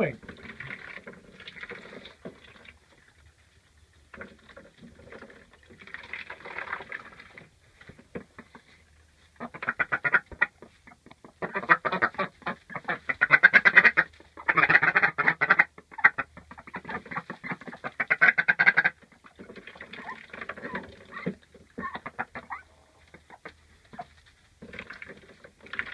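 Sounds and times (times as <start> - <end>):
ducks quacking: 9.4 - 24.1.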